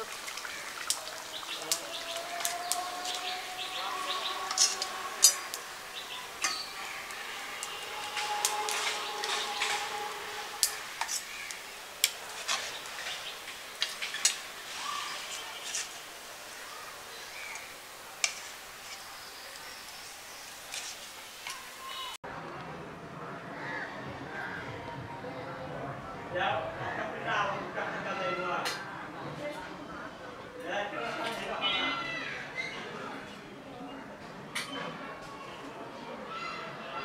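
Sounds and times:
steady hiss: 0:00.0 - 0:22.2.

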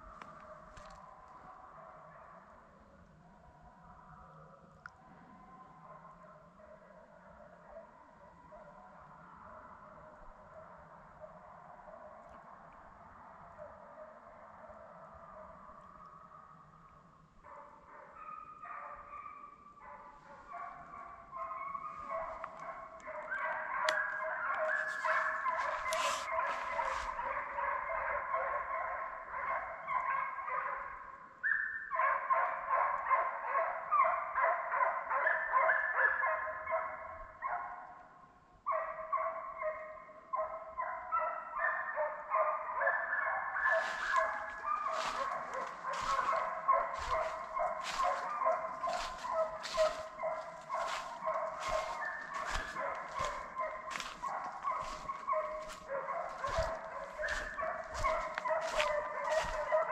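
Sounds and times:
hounds baying: 0:05.4 - 0:38.0, 0:38.7 - 0:59.9
crunching in dry leaves: 0:24.7 - 0:27.2, 0:43.7 - 0:59.9.

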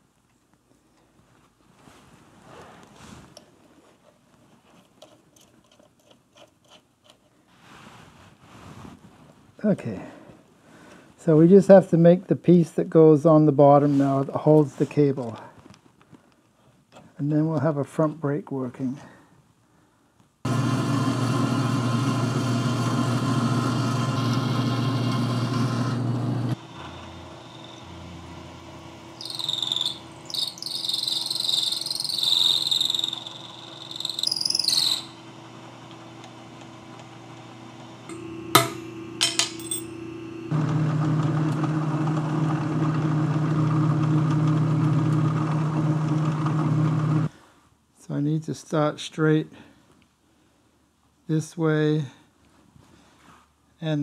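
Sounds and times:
machine tool humming: 0:20.5 - 0:47.3
high-pitched squeal: 0:26.7 - 0:28.0, 0:29.2 - 0:35.2.

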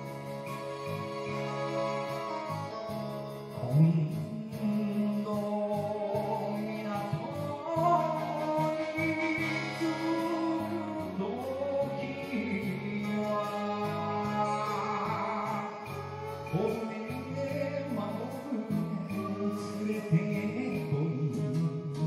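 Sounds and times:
backing track music: 0:00.0 - 0:22.0
person singing karaoke: 0:00.0 - 0:22.0.

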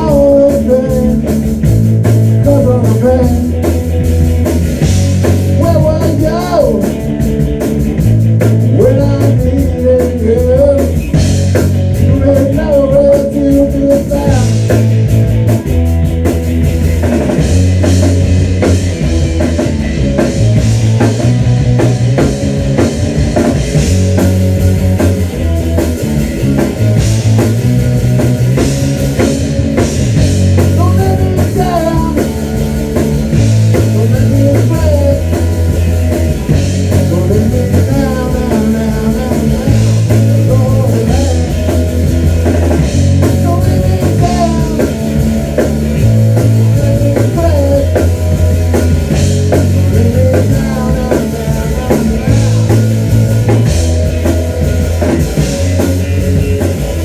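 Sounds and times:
distorted electric guitars: 0:00.0 - 0:57.0
drums: 0:00.0 - 0:57.0.

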